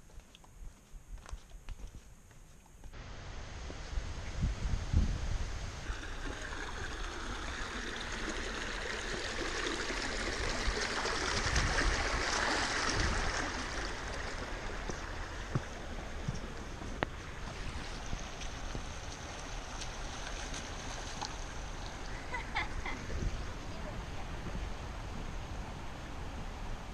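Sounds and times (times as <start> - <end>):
creek water rushing over rocks: 5.8 - 26.9.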